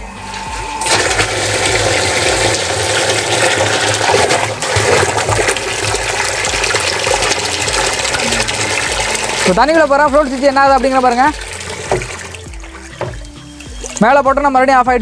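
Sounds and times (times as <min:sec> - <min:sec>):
water gushing into plastic barrel: 0:00.3 - 0:14.2.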